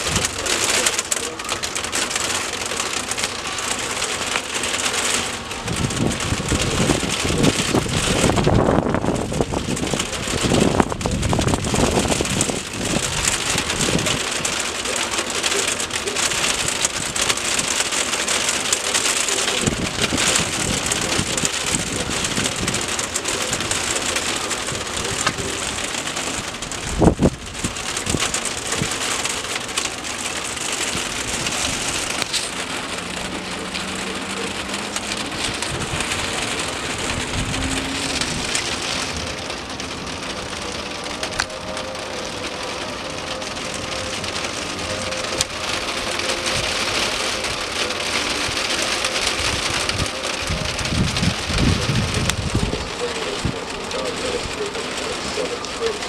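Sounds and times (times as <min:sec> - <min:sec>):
steady rain falling: 0:00.0 - 0:56.0
wind buffeting microphone: 0:05.6 - 0:14.5, 0:24.6 - 0:29.1, 0:34.5 - 0:41.6, 0:49.4 - 0:53.8.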